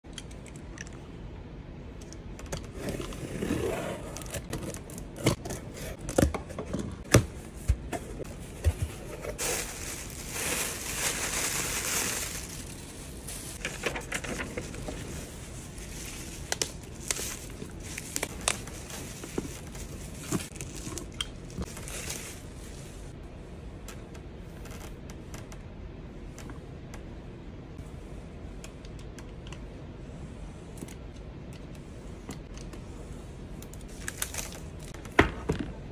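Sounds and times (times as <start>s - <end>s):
plastic packing wrap crinkling: 8.2s - 22.8s.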